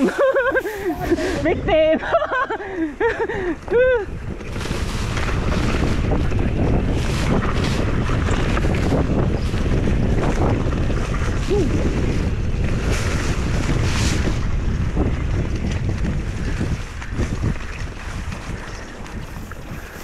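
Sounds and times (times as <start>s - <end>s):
bike tyres rumbling on dirt trail: 0.0s - 20.0s
wind buffeting microphone: 0.0s - 20.0s.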